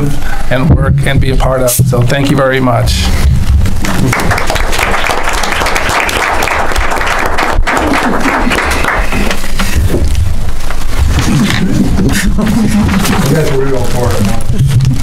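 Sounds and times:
audience applauding: 3.8 - 9.6.

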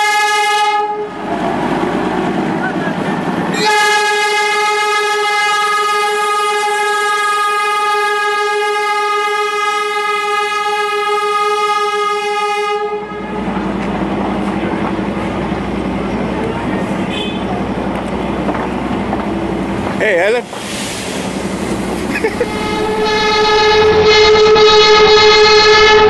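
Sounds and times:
locomotive horn blast: 0.0 - 1.3, 3.5 - 13.6, 17.0 - 17.6, 22.4 - 26.0
moving train rumble: 0.0 - 26.0.

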